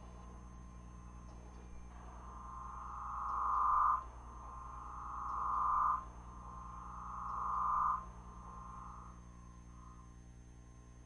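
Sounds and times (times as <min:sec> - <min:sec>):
steady low hum: 0:00.0 - 0:11.0
warbling electronic drone tone: 0:01.6 - 0:09.2.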